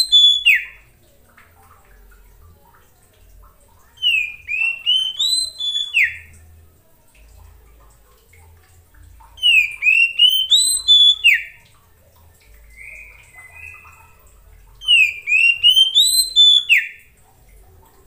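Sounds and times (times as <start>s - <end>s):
bird singing whistled notes: 0.0s - 0.8s, 4.0s - 6.3s, 9.4s - 11.6s, 12.6s - 14.2s, 14.8s - 17.0s
soft drawn-out bird whistle: 0.0s - 0.8s, 4.0s - 6.3s, 9.4s - 11.6s, 14.8s - 17.0s.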